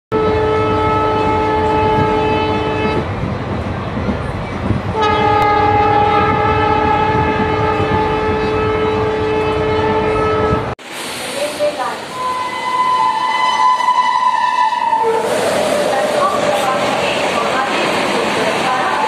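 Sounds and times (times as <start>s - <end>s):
train horn blasts: 0.1s - 3.0s, 4.9s - 10.7s, 12.2s - 15.4s
rumble of running train: 0.1s - 19.0s.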